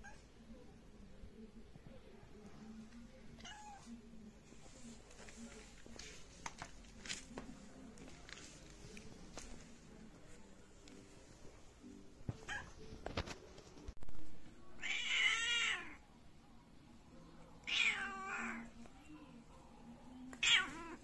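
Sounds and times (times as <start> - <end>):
cat meowing: 14.8 - 16.0, 17.6 - 18.7, 20.4 - 21.0.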